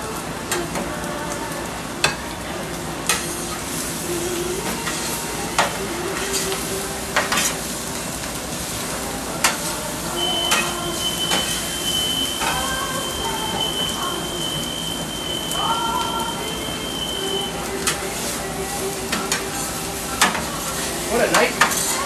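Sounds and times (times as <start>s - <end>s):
food sizzling on a griddle: 0.0s - 22.0s
metal spatulas scraping: 20.2s - 22.0s.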